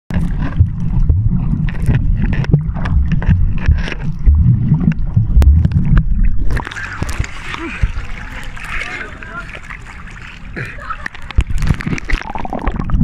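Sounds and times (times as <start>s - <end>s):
sharp underwater clicks: 0.1s - 7.6s, 11.0s - 13.0s
water churning and sloshing: 0.1s - 13.0s.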